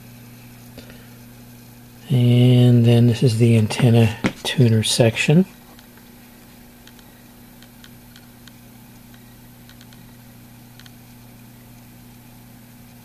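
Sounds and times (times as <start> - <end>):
steady low hum: 0.0 - 13.0
faint irregular ticks: 6.8 - 10.1, 10.7 - 13.0.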